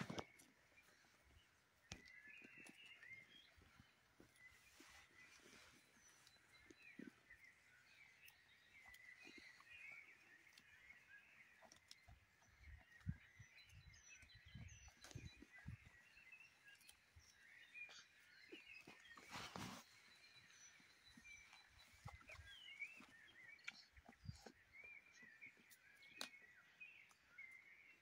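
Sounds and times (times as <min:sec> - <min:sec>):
faint birdsong: 0:00.0 - 0:28.0
rustling: 0:18.8 - 0:23.0.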